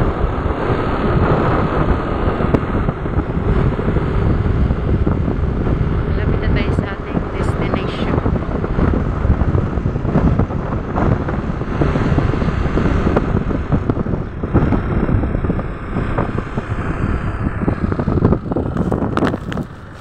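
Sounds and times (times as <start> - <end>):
road noise: 0.0 - 20.0
wind buffeting microphone: 0.0 - 20.0
scooter engine: 8.2 - 20.0.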